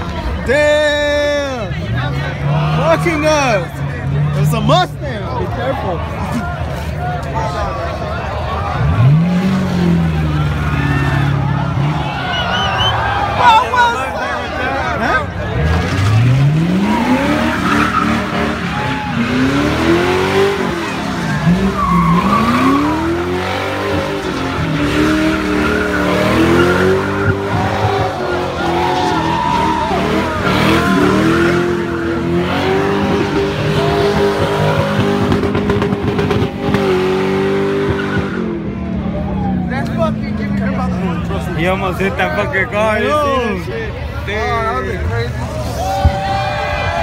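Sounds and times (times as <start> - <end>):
onlookers' voices: 0.0 - 47.0
car engine revving: 8.5 - 12.9, 15.2 - 42.7
tyres squealing: 21.0 - 32.8.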